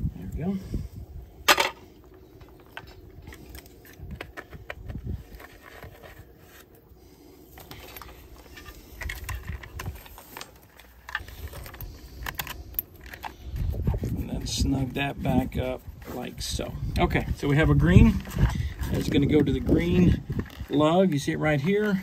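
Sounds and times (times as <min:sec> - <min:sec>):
plastic fitting clicks and scrapes: 0:07.6 - 0:14.2.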